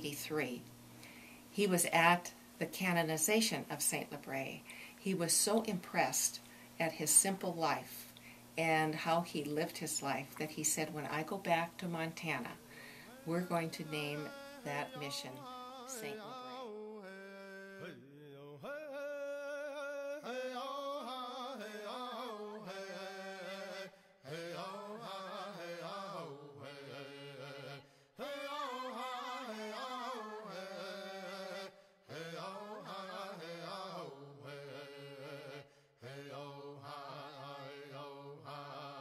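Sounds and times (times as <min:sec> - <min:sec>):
person singing a slow chant: 0:12.7 - 0:39.0.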